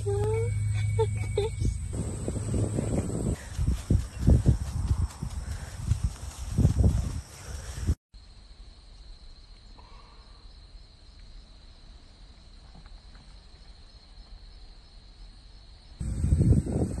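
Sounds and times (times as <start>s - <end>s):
wind noise on microphone: 0.0s - 8.0s, 16.0s - 17.0s
high-pitched insect trill: 0.0s - 17.0s.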